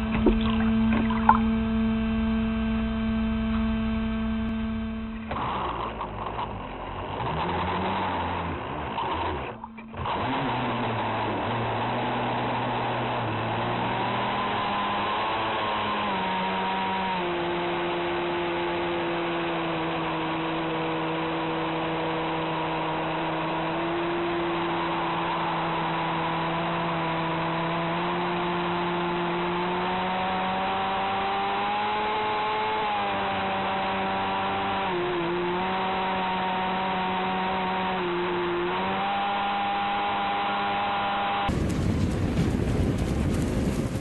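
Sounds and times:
water rushing and spraying: 0.0 - 1.6
model boat motor whine: 0.0 - 41.6.

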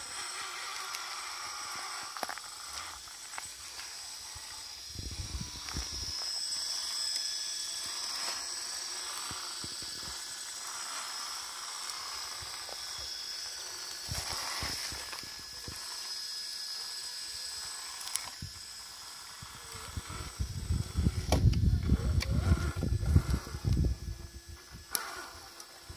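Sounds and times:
electric motor whining: 0.0 - 25.9.

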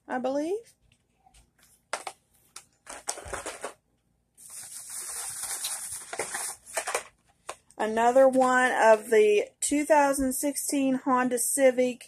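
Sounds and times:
plastic and cardboard crinkling: 1.6 - 3.8, 4.4 - 9.1.

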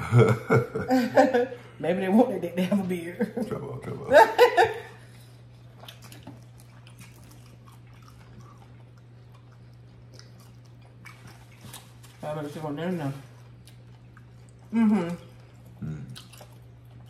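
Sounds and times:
person laughing: 0.0 - 1.6, 3.4 - 5.0
steady low hum: 0.0 - 17.0
chewing and mouth sounds: 5.1 - 12.2, 13.3 - 17.0.

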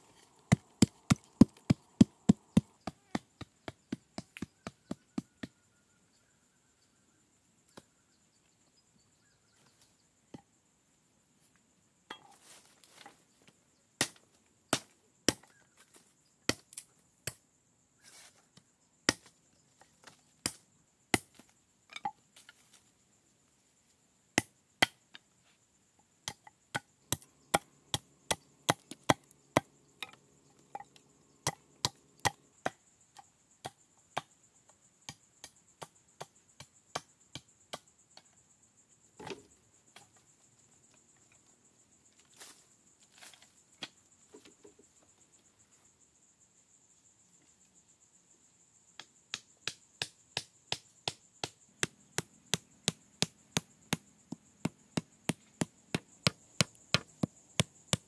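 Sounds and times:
machete chopping wood: 14.0 - 15.6, 19.1 - 19.3.

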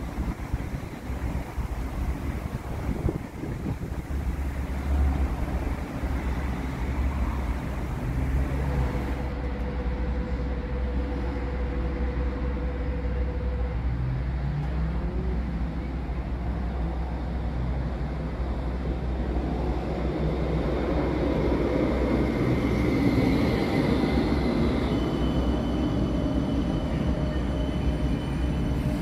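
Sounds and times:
road traffic rumble: 0.0 - 11.2.

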